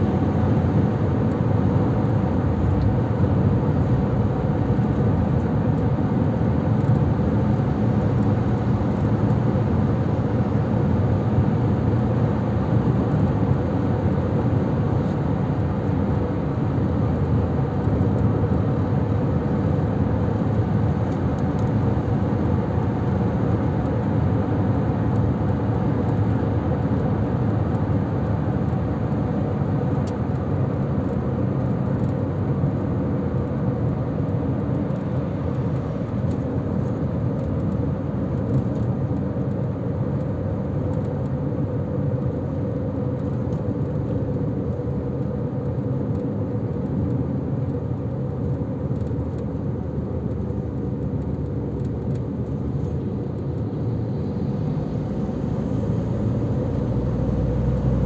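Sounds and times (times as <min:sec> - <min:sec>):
tyres rumbling on road: 0:48.2 - 0:58.0
car engine humming: 0:49.2 - 0:58.0.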